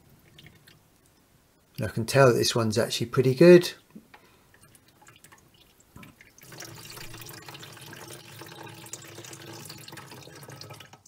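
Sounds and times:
water trickling into bucket: 0.0s - 1.2s, 4.5s - 11.0s.

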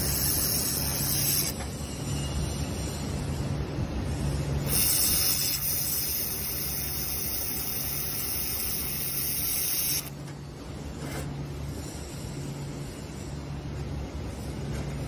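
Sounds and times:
laser welder hissing: 0.0s - 1.6s, 4.7s - 10.1s.

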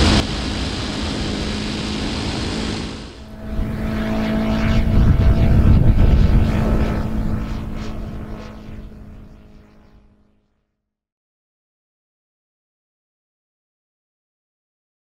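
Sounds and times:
drone propeller humming overhead: 0.0s - 10.6s.

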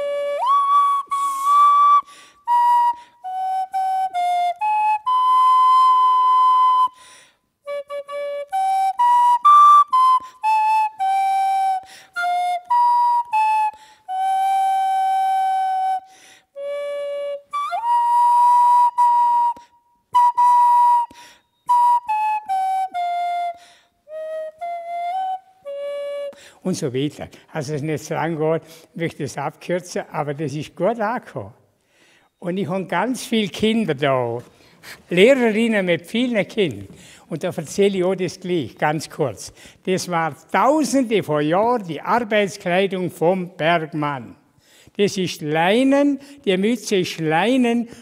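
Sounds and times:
nose flute melody: 0.0s - 26.6s.

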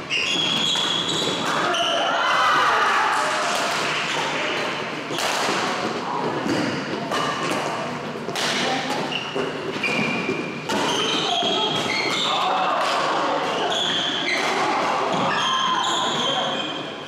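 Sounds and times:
shoes squeaking on floor: 0.0s - 2.1s, 8.7s - 12.6s, 13.3s - 17.0s
rackets hitting shuttlecock: 3.5s - 15.5s.

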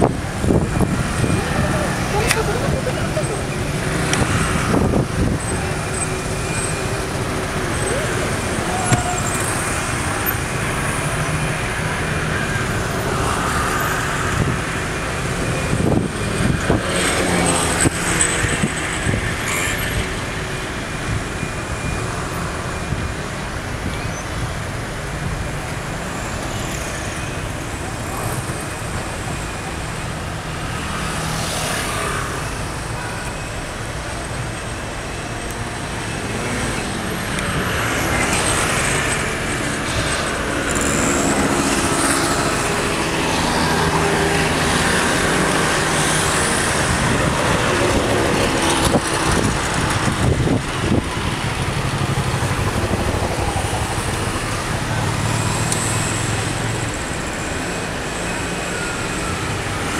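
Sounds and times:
car engines idling: 0.0s - 16.8s, 32.0s - 59.9s.

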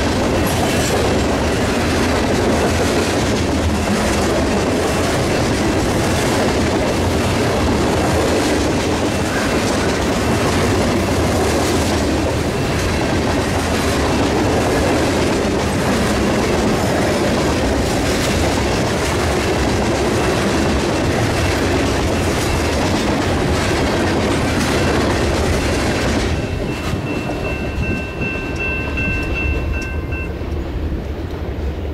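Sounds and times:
freight train passing: 0.0s - 31.9s
high steady ringing tone: 24.7s - 30.6s.

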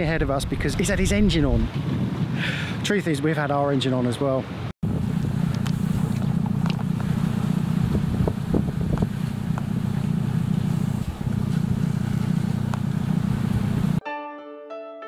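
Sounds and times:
boat engine droning: 4.4s - 14.0s.

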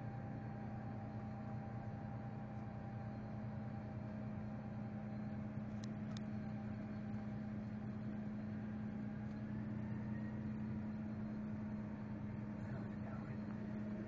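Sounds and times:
tractor engine drone: 0.0s - 14.0s.

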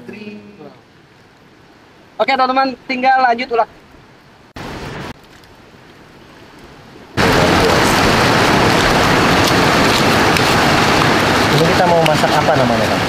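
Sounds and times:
river water rushing: 0.0s - 13.0s
burst of noise: 7.2s - 13.0s.

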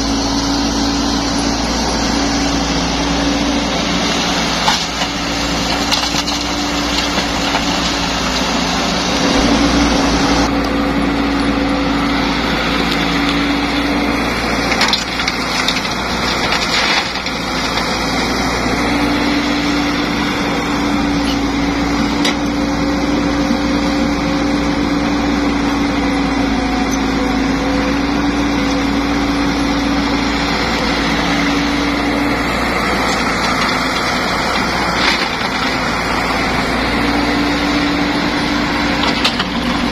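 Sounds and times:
excavator diesel engine: 0.0s - 39.9s
rock and soil scraping in bucket: 14.7s - 18.0s.

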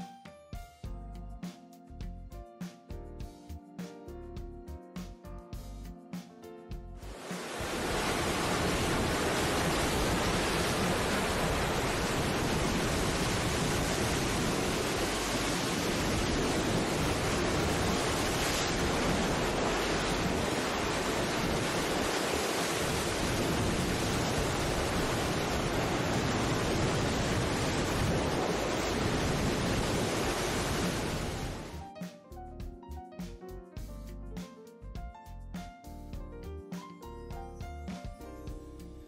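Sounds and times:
rushing water roar: 7.0s - 31.8s.

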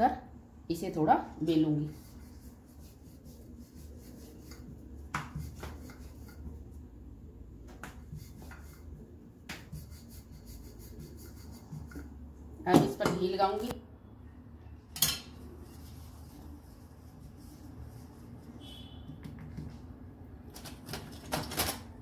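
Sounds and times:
rolling pin rubbing dough: 1.4s - 12.3s.

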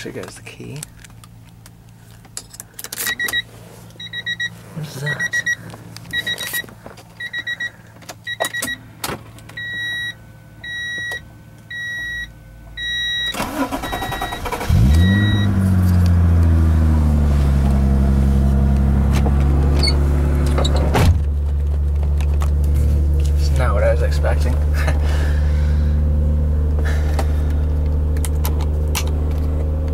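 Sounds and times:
car engine starting and idling: 0.0s - 29.9s
dashboard warning chime beeping: 3.0s - 8.9s, 9.5s - 15.7s.

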